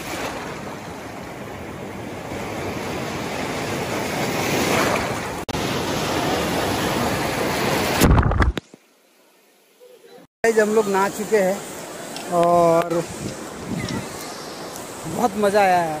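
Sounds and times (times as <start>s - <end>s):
surf breaking on a beach: 0.0s - 8.5s.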